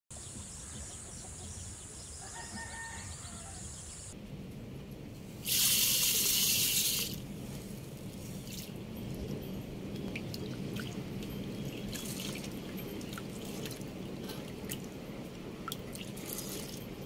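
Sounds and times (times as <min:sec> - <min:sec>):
faint chicken calls: 0:00.2 - 0:04.2.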